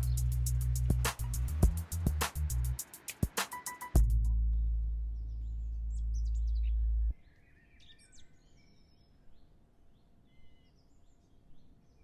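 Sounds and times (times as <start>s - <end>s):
birds chirping faintly: 0.0s - 2.0s, 2.8s - 12.0s
deep sustained low music note: 4.0s - 7.2s.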